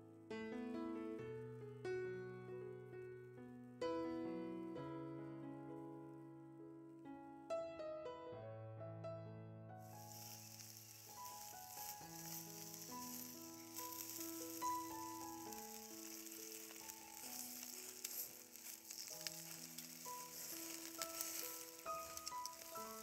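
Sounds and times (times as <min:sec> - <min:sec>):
soft background music: 0:00.0 - 0:23.0
oil sizzling on hot coals: 0:09.8 - 0:23.0.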